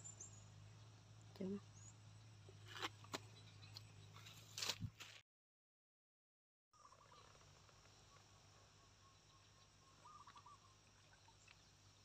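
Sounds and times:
faint chirping calls: 6.8s - 12.0s.

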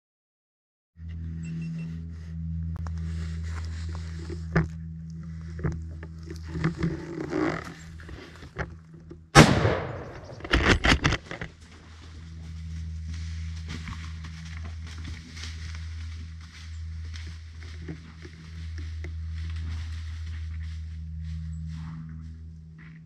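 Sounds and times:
gunshot: 9.4s - 10.8s.

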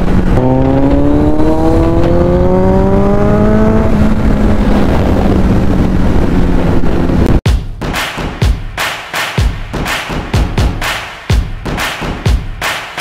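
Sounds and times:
motorcycle engine revving: 0.0s - 7.4s.

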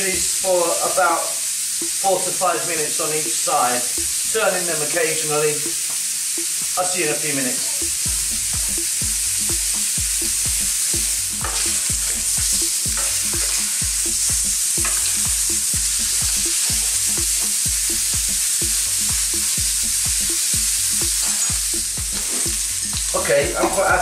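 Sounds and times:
meat sizzling in grill pan: 0.0s - 24.0s
low regular thudding: 7.8s - 24.0s
metal tongs scraping pan: 11.4s - 11.9s, 22.2s - 22.5s.

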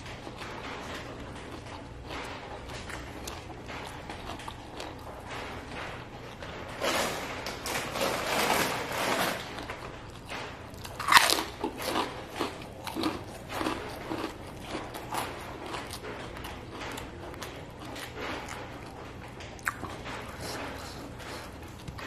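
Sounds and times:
crunching raw vegetables: 9.5s - 22.0s.

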